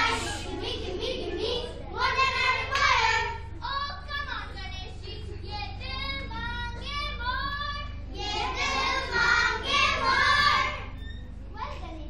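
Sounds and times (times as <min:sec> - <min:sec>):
children singing: 0:00.0 - 0:03.4, 0:08.2 - 0:10.9.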